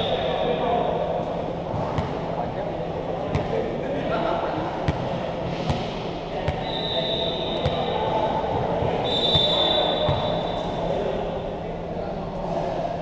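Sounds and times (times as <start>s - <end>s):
crowd chatter: 0.0s - 13.0s
high whistle tone: 6.6s - 7.9s, 9.0s - 10.6s.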